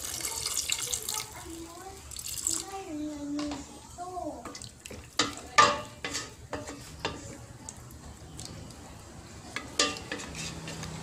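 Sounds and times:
wooden spatula knocking metal pot: 0:04.4 - 0:07.2, 0:09.6 - 0:10.8.

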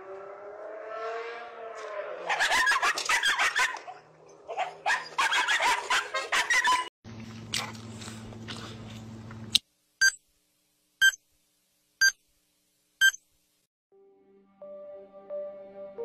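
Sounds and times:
low electrical hum: 0:07.1 - 0:13.6
short electronic beeps: 0:13.0 - 0:13.2.

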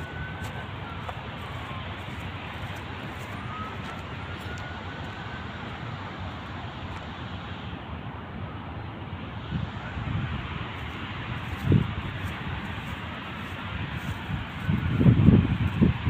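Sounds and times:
distant traffic: 0:00.0 - 0:16.0
wind on microphone: 0:09.4 - 0:16.0.

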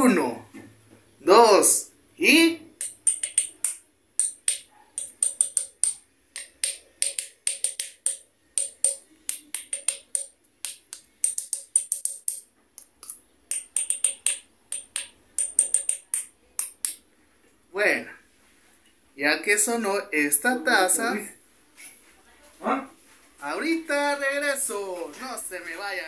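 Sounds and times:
disc tapping against a mug: 0:02.8 - 0:17.0.

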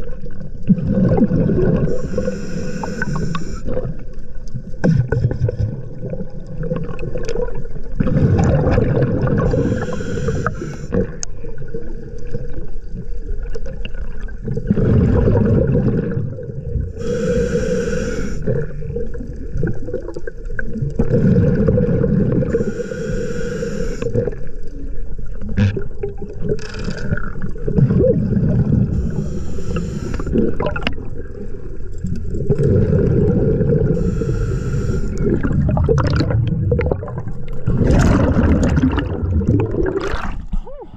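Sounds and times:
gurgle of exhaled bubbles: 0:00.0 - 0:22.8, 0:24.0 - 0:40.9
regulator inhale hiss: 0:01.9 - 0:03.8, 0:09.5 - 0:11.0, 0:16.9 - 0:18.7, 0:22.5 - 0:24.4, 0:28.9 - 0:30.4, 0:34.0 - 0:35.4.

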